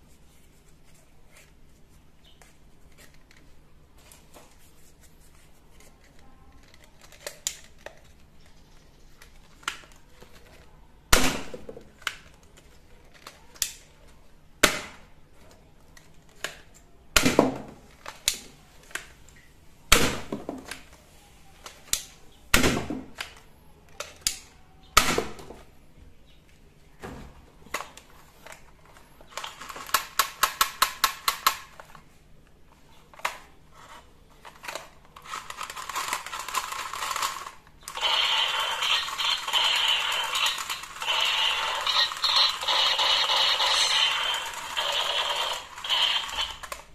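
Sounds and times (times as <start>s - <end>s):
toy gun clicks and knocks: 29.4s - 31.7s, 35.5s - 46.9s.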